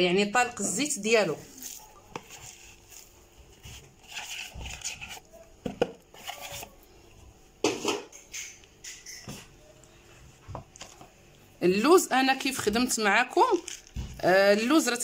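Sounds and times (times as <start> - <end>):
powder scraping in plastic bowl: 1.5 - 5.3.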